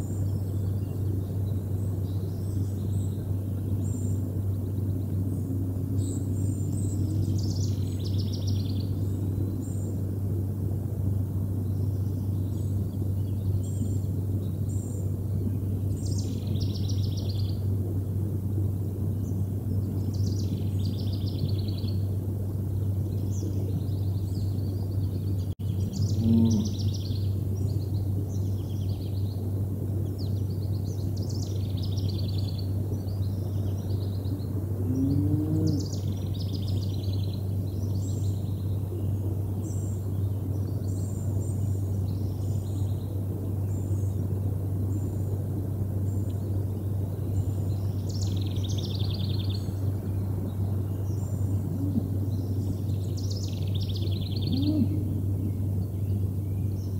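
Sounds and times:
steady low hum: 0.0s - 56.9s
songbirds chirping and singing: 23.2s - 29.0s, 47.2s - 56.9s
cattle mooing: 26.2s - 26.8s.

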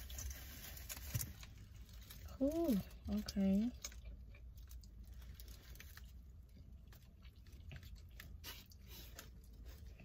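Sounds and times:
faint chewing of food: 0.0s - 10.0s
low steady hum: 0.0s - 10.0s.

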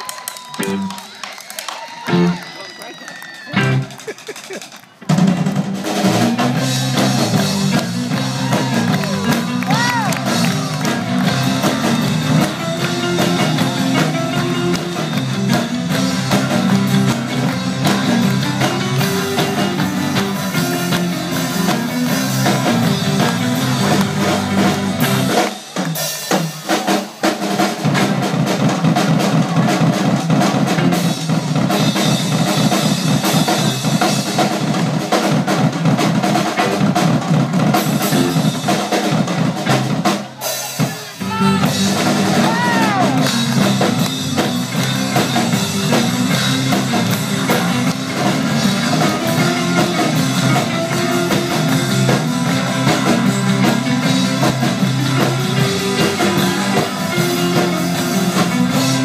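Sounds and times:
rock band playing: 0.0s - 59.0s
repeating guitar riff: 2.1s - 2.4s, 3.5s - 4.0s, 6.9s - 25.2s, 41.3s - 59.0s
fast driving drum beat: 3.5s - 59.0s.

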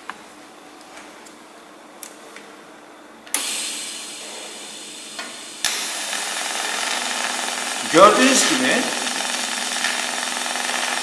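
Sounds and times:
welding torch hissing: 3.4s - 11.0s
welding arc crackling: 5.6s - 11.0s.

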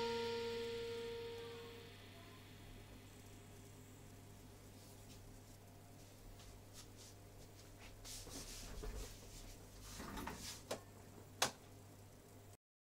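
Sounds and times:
steady low hum: 0.0s - 12.6s
light knocks and rustles: 8.2s - 10.8s.

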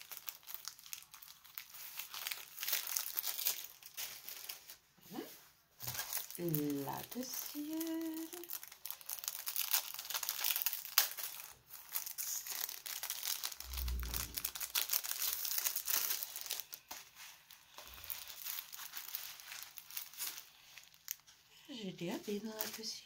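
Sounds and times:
packaging crinkling and rustling: 0.0s - 23.0s.

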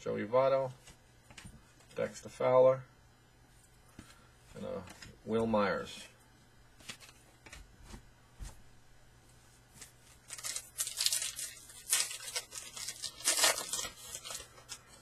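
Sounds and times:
foil wrapper tearing and crinkling: 10.1s - 15.0s.

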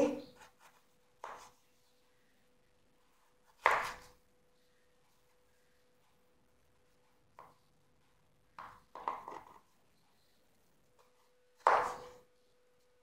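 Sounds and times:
knife cutting raw potato: 3.4s - 4.2s, 11.0s - 12.3s.

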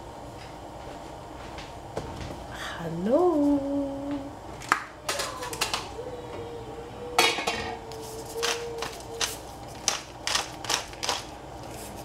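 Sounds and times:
dishes and utensils clinking: 7.2s - 7.8s.

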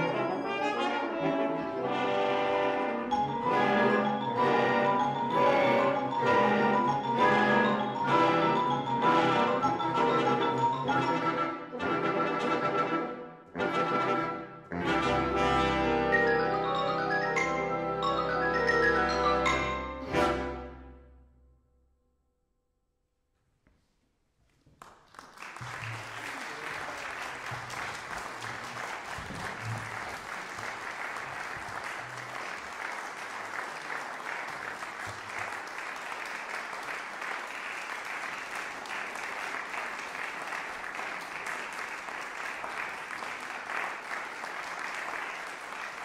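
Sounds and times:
audience applauding: 24.8s - 46.0s.

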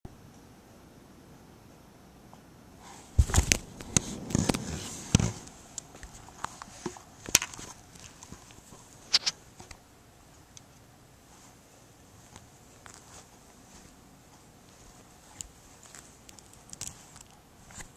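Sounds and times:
camera handling knocks and rustling: 3.2s - 8.6s.

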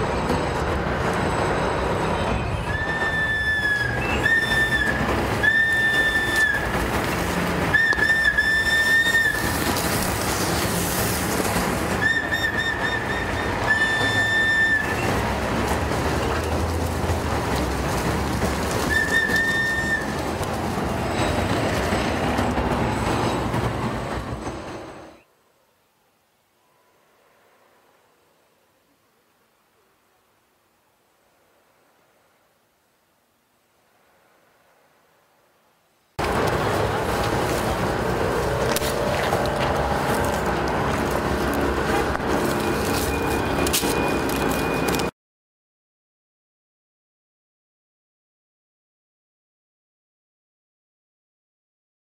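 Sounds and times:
plastic whistle blasts: 2.7s - 6.6s, 7.8s - 9.5s, 12.0s - 15.0s.

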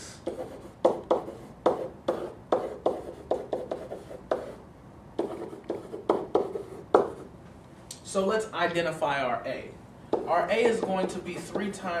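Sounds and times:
pen tapping and scraping whiteboard: 0.2s - 4.6s, 5.2s - 7.3s, 10.1s - 11.8s.

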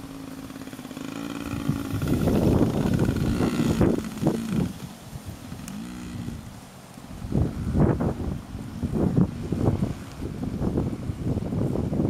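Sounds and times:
dirt bike engine passing: 0.0s - 6.6s.

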